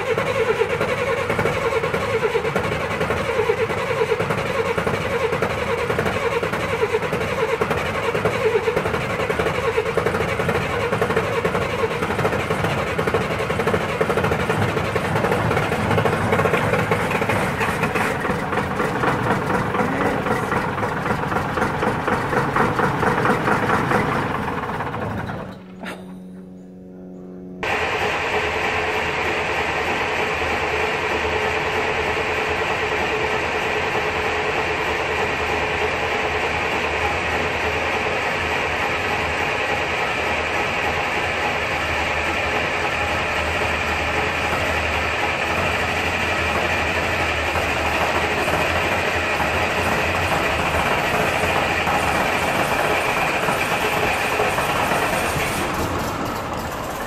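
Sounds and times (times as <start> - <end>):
diesel bus engine running: 0.0 - 57.0.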